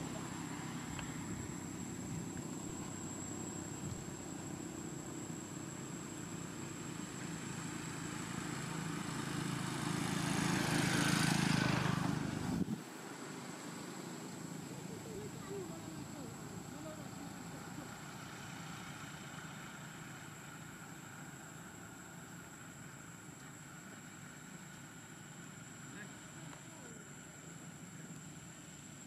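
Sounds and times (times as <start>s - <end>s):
passing vehicle: 0.0s - 29.0s.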